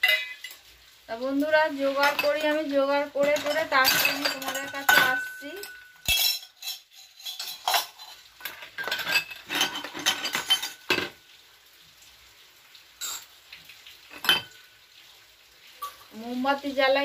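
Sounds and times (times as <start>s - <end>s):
metal dishes clinking: 0.0s - 0.6s, 2.0s - 11.2s, 13.0s - 13.3s, 14.1s - 14.6s.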